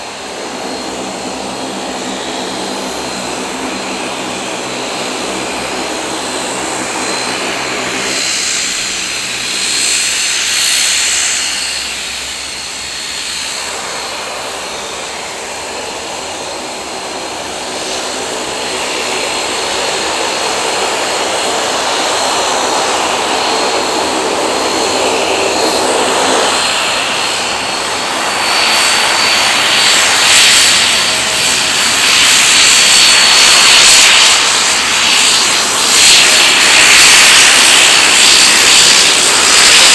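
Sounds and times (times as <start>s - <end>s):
turboprop plane taxiing: 0.0s - 39.9s.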